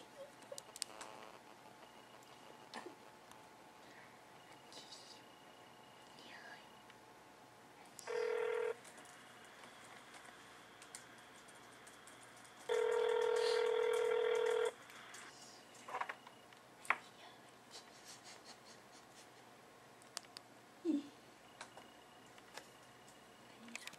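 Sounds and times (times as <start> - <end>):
sharp clicks: 0.4 - 1.2
phone ringback tone: 8.0 - 8.8, 12.7 - 14.8.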